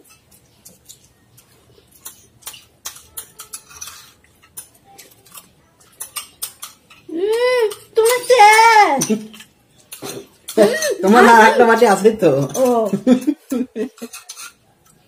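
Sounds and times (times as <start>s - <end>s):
spoons clinking on ceramic bowls: 0.0s - 15.0s
person speaking: 10.6s - 13.6s.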